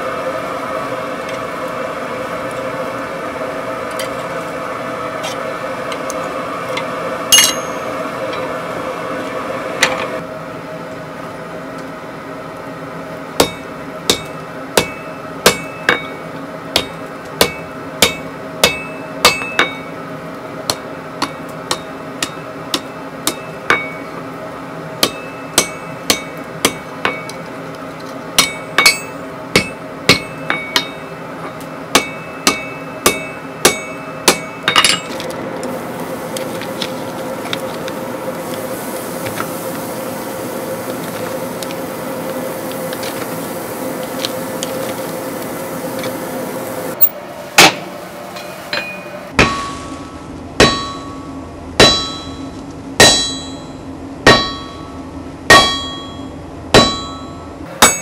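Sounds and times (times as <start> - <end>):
anvil ringing: 7.3 - 8.5, 13.4 - 16.2, 16.8 - 19.9, 21.2 - 24.1, 25.0 - 27.4, 28.4 - 31.2, 31.9 - 35.1, 48.4 - 58.0
hammer striking iron on anvil: 7.3 - 8.5, 13.4 - 20.0, 20.7 - 24.2, 25.0 - 27.4, 28.4 - 35.2, 47.0 - 58.0
hot metal hissing in water: 35.7 - 47.0.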